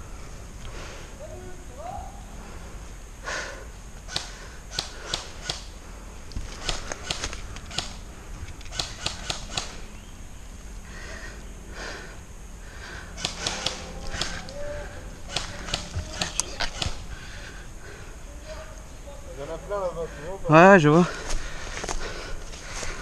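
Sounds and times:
airsoft rifles firing: 8.7s - 9.9s, 13.2s - 14.6s, 15.2s - 17.1s.

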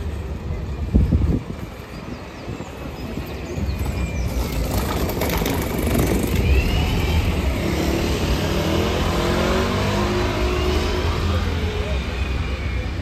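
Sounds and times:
bus engine rumbling: 0.0s - 13.0s
engine whine climbing in pitch: 4.2s - 13.0s.

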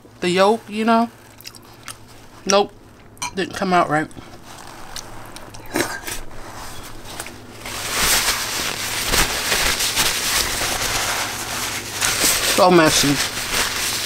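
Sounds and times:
food crackling and rustling: 0.0s - 14.0s
soft bites and clicks: 1.3s - 3.2s.

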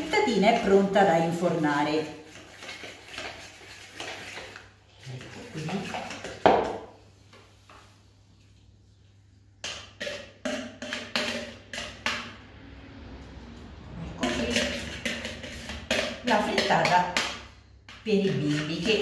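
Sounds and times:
bowl knocking and scraping: 5.2s - 6.9s, 9.6s - 12.3s, 14.2s - 19.0s.

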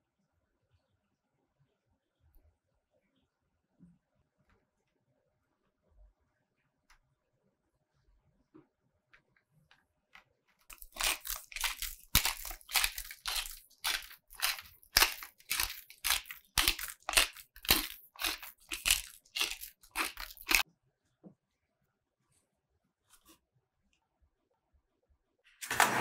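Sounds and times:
pepper mill grinding: 10.7s - 20.6s.

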